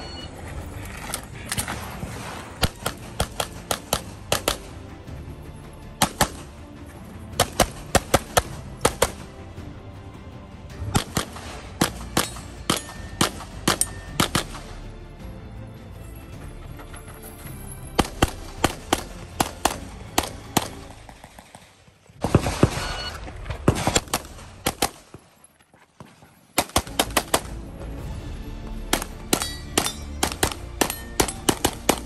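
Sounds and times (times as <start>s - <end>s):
pistol fired rapidly: 2.6s - 4.7s, 6.0s - 6.4s, 7.4s - 9.3s, 10.9s - 14.6s, 18.0s - 21.5s, 23.6s - 25.1s, 26.6s - 27.6s, 28.9s - 32.0s.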